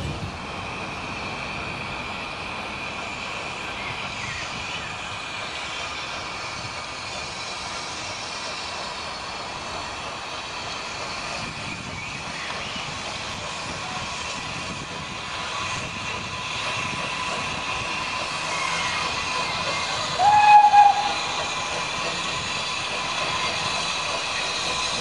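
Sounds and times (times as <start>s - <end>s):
steam locomotive hiss and rumble: 0.0s - 25.0s
steam whistle blast: 20.2s - 21.3s.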